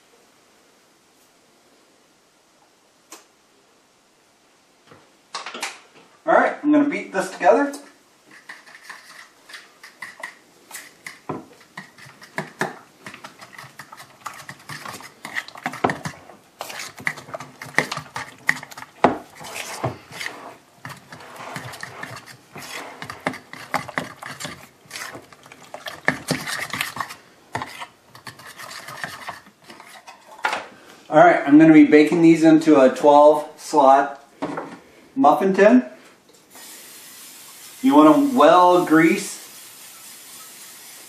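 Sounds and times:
utensil beating batter in bowl: 8.3s - 30.1s.

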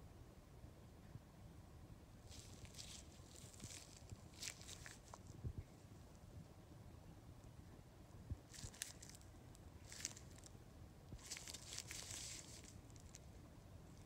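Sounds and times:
glove rustling: 2.3s - 5.2s, 11.2s - 13.3s.

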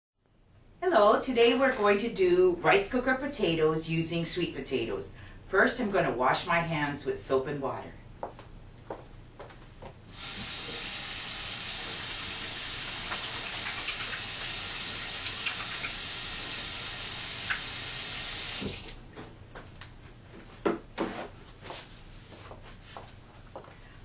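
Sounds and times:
faucet running into steel sink: 10.1s - 19.0s.

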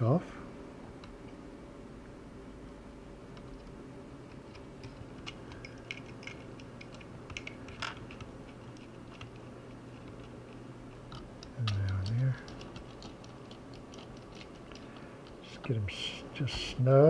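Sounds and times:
screwdriver clicking on plastic: 11.1s - 15.4s.

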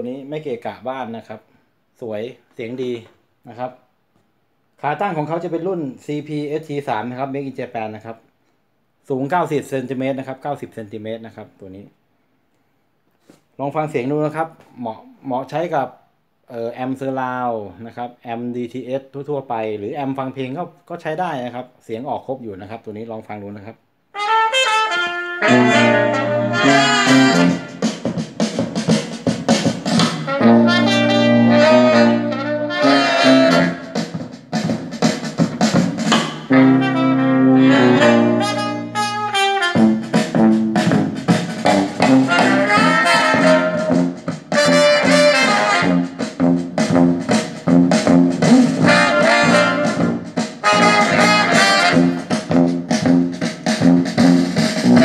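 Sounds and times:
instrumental music over speakers: 24.2s - 55.0s.

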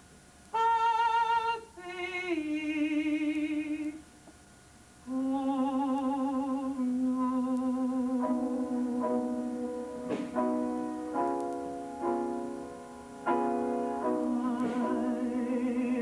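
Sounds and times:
woman singing with vibrato: 0.5s - 4.1s, 5.0s - 9.6s, 14.0s - 16.0s.

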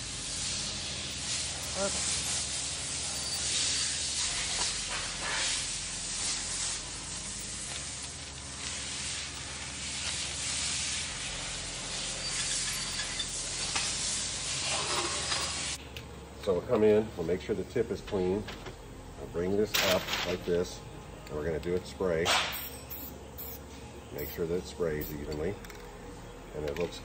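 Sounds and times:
masking paper rustling and crinkling: 19.8s - 20.4s.

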